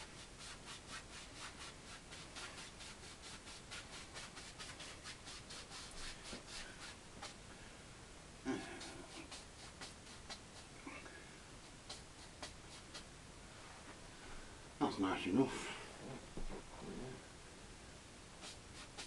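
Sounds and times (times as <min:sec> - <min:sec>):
paintbrush scratching on canvas: 0:00.0 - 0:07.4, 0:08.8 - 0:10.7, 0:11.6 - 0:13.1, 0:18.4 - 0:19.0.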